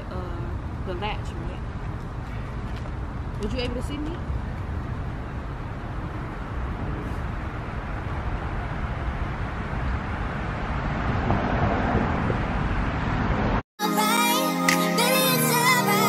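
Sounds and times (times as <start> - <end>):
rumble of passing cars: 0.0 - 13.6.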